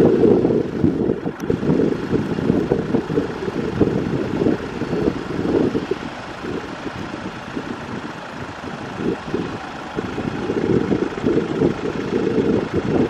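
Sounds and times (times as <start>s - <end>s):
airliner engines humming: 0.0s - 13.0s
wind buffeting microphone: 0.0s - 13.0s.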